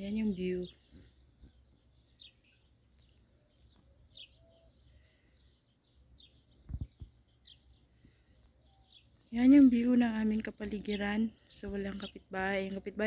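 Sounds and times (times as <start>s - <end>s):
birds chirping faintly: 0.0s - 13.0s.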